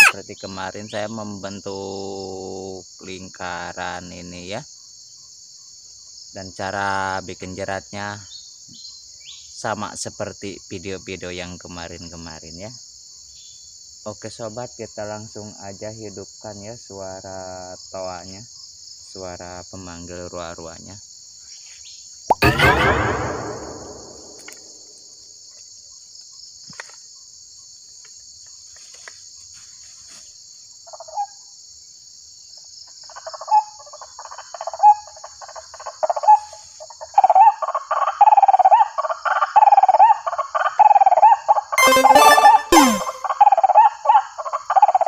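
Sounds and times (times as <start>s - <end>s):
bird call through loudspeaker: 0.0s - 0.5s
high insect drone: 0.0s - 9.0s
loud burst: 22.3s - 24.6s.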